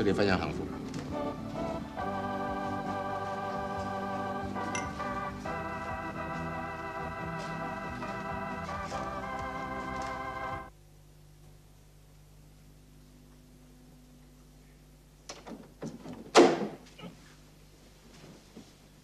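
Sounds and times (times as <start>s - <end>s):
organ chords: 0.0s - 10.8s.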